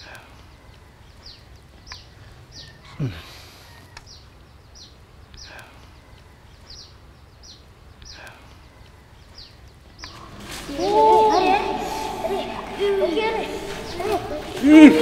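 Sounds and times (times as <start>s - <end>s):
birds chirping: 0.0s - 15.0s
faint outdoor background noise: 0.0s - 15.0s
lower falling bird call: 10.0s - 15.0s.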